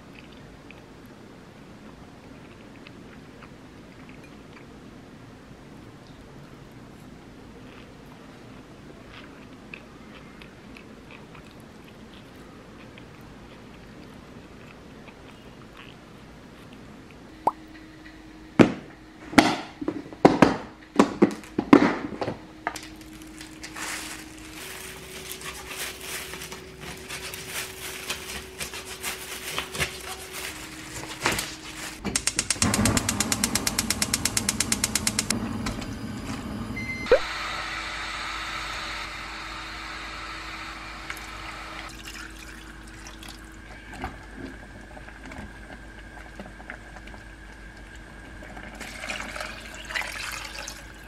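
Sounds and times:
steady hum: 17.2 - 51.0
fast even clicking: 32.1 - 35.4.

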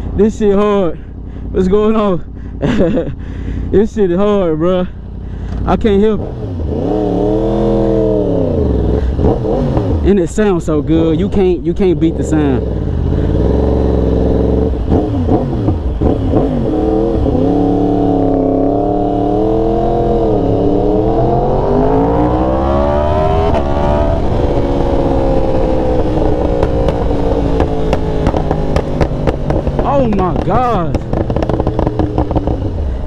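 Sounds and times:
motorcycle engine accelerating: 4.8 - 33.0.

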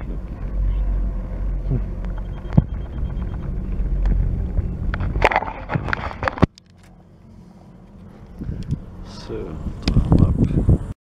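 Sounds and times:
chairlift rumbling along rope: 0.0 - 6.5.

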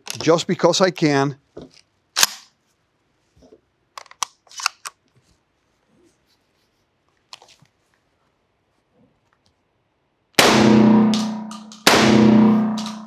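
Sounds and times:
shotgun shots ringing indoors: 10.4 - 13.0.

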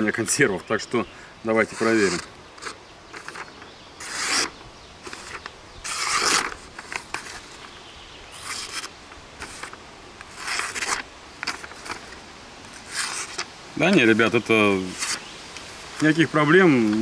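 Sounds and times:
knife blade slicing paper: 1.6 - 7.4, 8.4 - 12.0, 12.8 - 13.5, 14.8 - 15.2
paper rustling: 1.6 - 7.7, 8.4 - 15.2.

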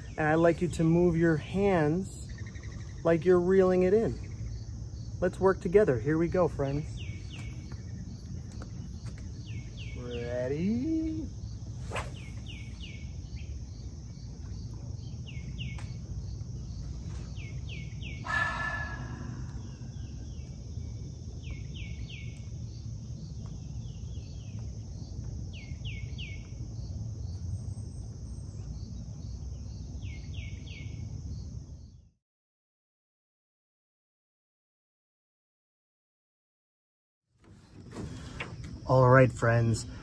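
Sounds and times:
birds chirping: 0.0 - 32.0, 37.4 - 40.0
high insect trill: 0.0 - 32.0, 38.0 - 40.0
low steady rumble: 0.0 - 32.1.

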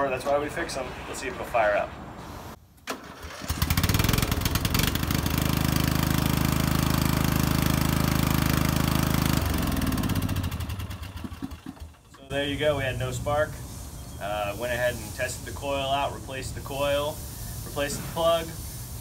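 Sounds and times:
mower engine starting and running: 2.9 - 13.6.

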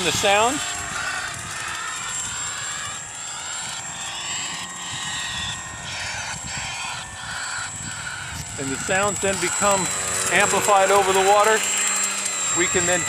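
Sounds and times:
model plane motor droning: 0.0 - 13.0
recorded starling calls: 5.3 - 11.5.

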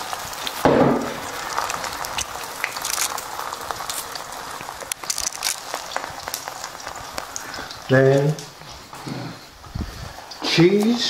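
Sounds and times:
eggs sizzling in a frying pan: 0.0 - 11.0.

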